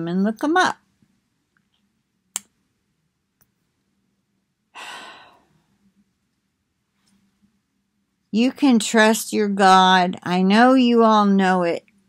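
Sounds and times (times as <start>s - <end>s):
woman sighing: 4.8s - 5.5s.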